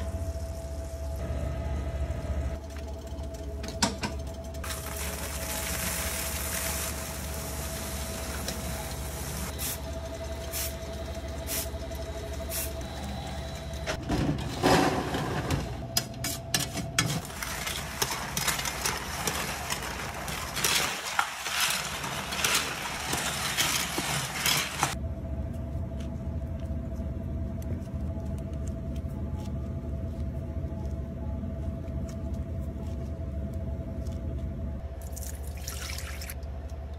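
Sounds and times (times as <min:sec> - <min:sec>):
machine hum with faint whine: 0:00.0 - 0:36.9
popcorn pouring into metal bowl: 0:04.6 - 0:09.5, 0:17.2 - 0:25.0
metal scoop scraping popcorn: 0:04.6 - 0:09.8, 0:17.0 - 0:25.0.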